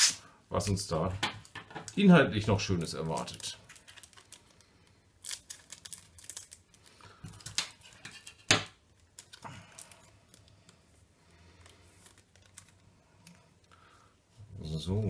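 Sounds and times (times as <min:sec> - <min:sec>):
foil wrapper crinkling: 0:01.9 - 0:10.8, 0:11.4 - 0:13.4
cards rustling: 0:01.9 - 0:13.7.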